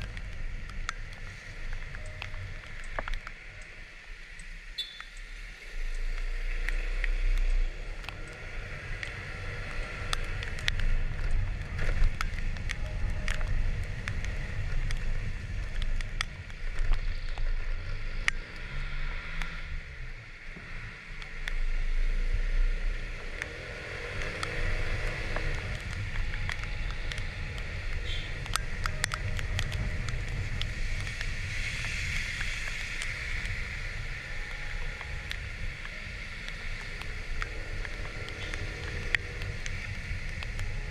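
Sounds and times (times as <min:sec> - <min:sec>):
sharp ticks: 0:00.0 - 0:19.7, 0:23.1 - 0:40.9
tyres hissing on wet road: 0:00.0 - 0:40.9.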